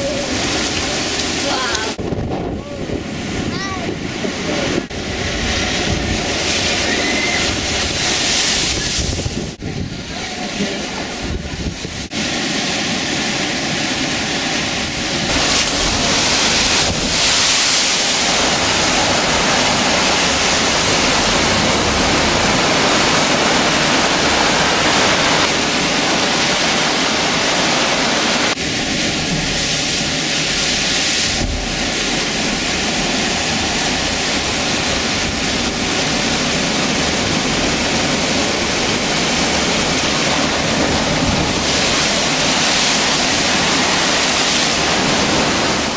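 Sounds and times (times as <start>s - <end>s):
surf breaking against sea walls: 0.0s - 45.9s
wind buffeting microphone: 0.0s - 45.9s
seawater pouring over wall: 12.1s - 45.9s.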